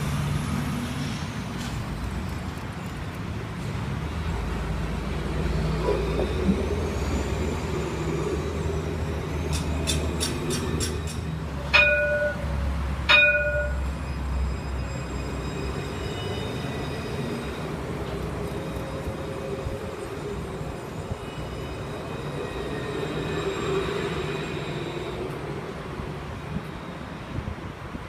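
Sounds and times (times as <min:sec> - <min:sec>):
tram rumbling on track: 0:00.0 - 0:28.0
tram warning gong: 0:05.4 - 0:25.5.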